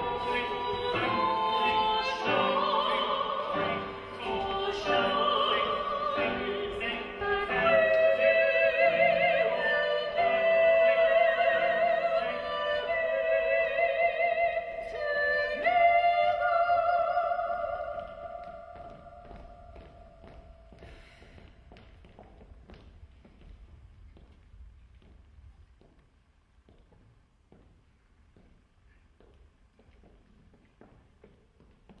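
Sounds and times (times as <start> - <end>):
operatic singing with vibrato: 0.0 - 20.6
classical music: 0.0 - 21.4.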